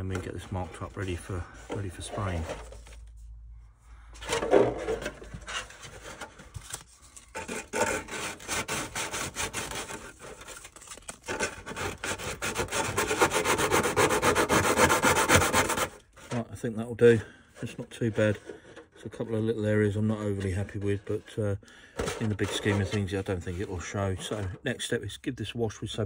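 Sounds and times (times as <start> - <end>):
hand sanding plastic edges: 7.3 - 16.4.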